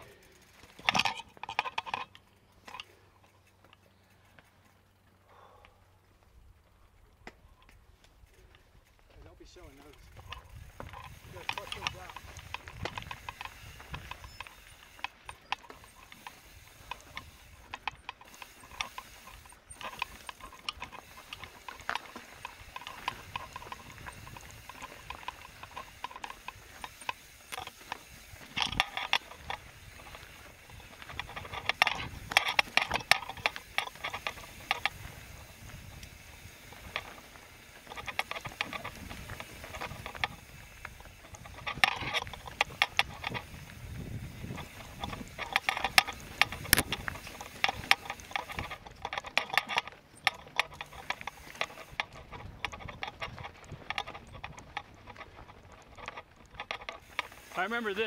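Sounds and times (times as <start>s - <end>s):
bike chain and frame rattling: 0.0s - 58.0s
bike hub ticking rapidly: 0.0s - 58.0s.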